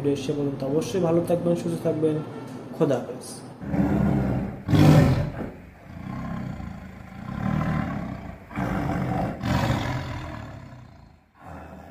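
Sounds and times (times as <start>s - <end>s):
low rough roars: 3.6s - 11.9s.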